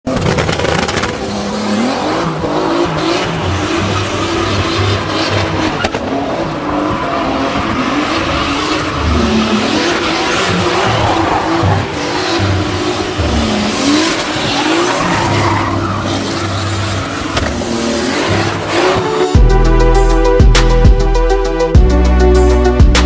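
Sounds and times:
car engine revving: 0.1s - 21.0s
tyres squealing: 2.3s - 19.1s.

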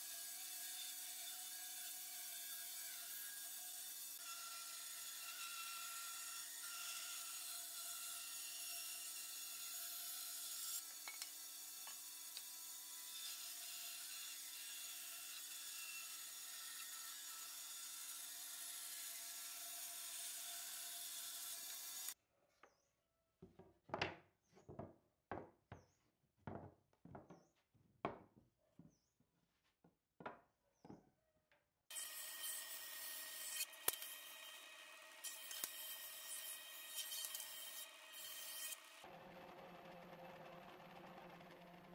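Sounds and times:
bandsaw blade cutting wood: 0.0s - 22.2s, 31.9s - 41.8s
wooden boards knocking: 23.4s - 25.9s, 26.5s - 27.5s
bandsaw motor hum: 32.6s - 41.9s.

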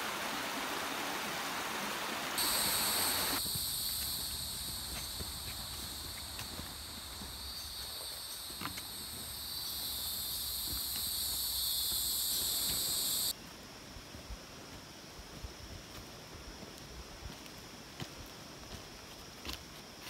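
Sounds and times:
footsteps on trail: 2.4s - 13.4s, 14.7s - 20.0s
insect chorus drone: 2.4s - 20.0s.

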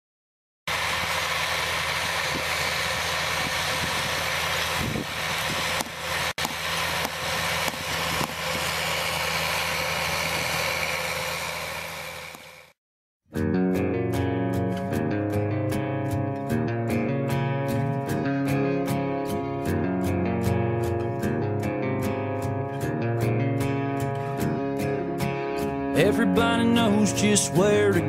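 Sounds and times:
tractor diesel engine under load: 0.7s - 12.8s.

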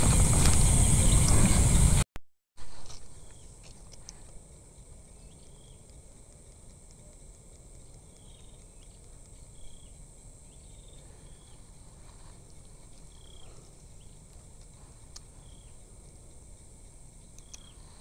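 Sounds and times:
insects droning: 0.0s - 2.0s, 2.6s - 18.0s
low rumble of wind: 0.0s - 2.0s
insect chirps: 2.6s - 18.0s.

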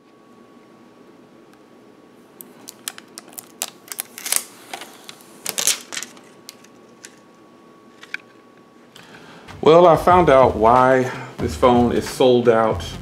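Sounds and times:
plastic film crackling: 2.5s - 7.2s.

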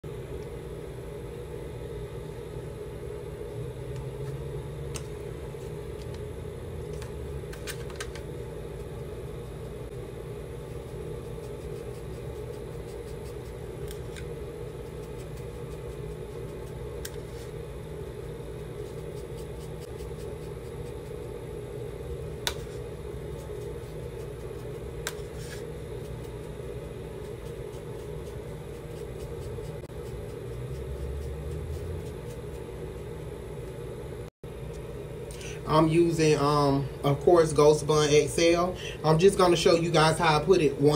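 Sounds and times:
low hum: 0.0s - 40.9s.

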